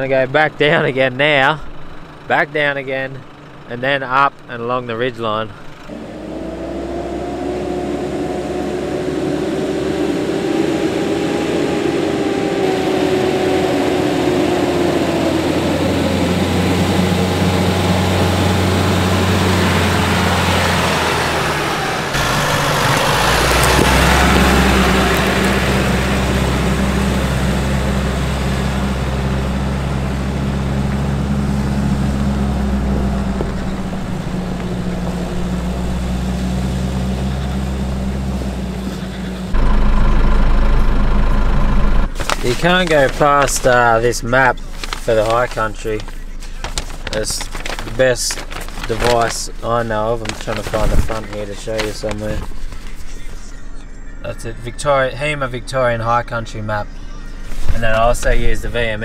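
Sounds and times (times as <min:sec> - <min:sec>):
vehicle engine drone: 0:00.0 - 0:59.0
vehicle passing close by: 0:05.9 - 0:40.0.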